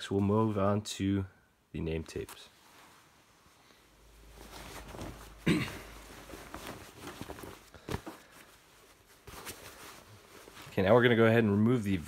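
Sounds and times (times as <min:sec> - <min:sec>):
fabric rustling: 0:02.5 - 0:12.0.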